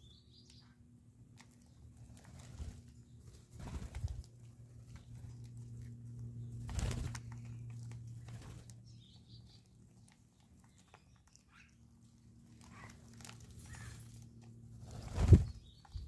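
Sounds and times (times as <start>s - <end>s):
wings flapping: 1.4s - 5.9s, 6.5s - 9.0s, 12.4s - 16.0s.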